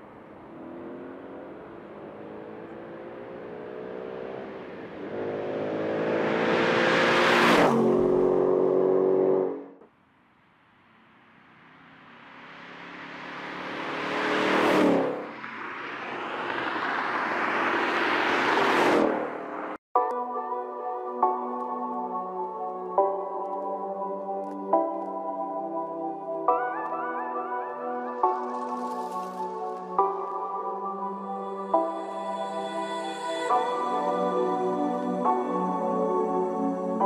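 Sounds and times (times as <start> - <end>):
car engine accelerating past: 0.3 - 9.8, 12.1 - 19.8.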